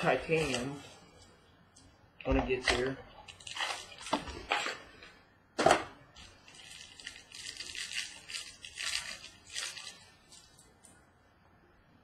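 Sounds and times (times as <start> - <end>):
plastic wrapper crinkling and tearing: 0.0 - 1.0, 2.6 - 4.8, 6.2 - 11.0.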